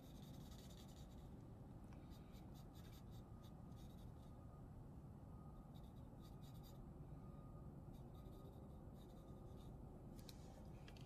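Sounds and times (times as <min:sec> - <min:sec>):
pencil scratching on paper: 0:00.0 - 0:01.3, 0:02.1 - 0:04.3, 0:05.7 - 0:06.8, 0:07.9 - 0:09.8.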